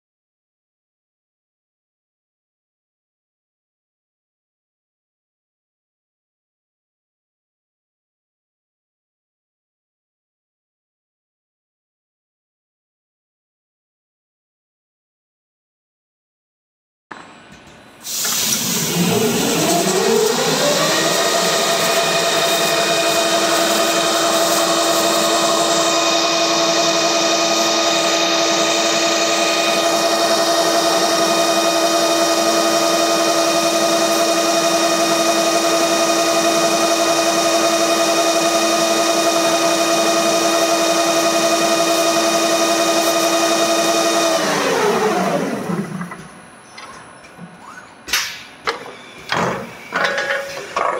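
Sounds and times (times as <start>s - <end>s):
machine hiss: 18.0s - 26.0s
machine whine: 18.1s - 50.4s.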